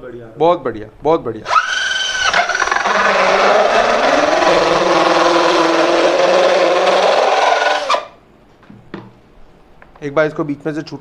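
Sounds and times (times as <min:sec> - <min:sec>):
drill motor whine: 0:01.5 - 0:08.2
saw blade cutting plastic: 0:01.5 - 0:08.2.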